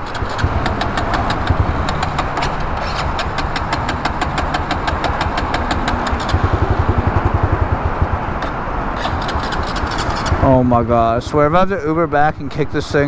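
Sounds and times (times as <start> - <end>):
small engine cranking: 0.0 - 6.6, 9.0 - 10.4.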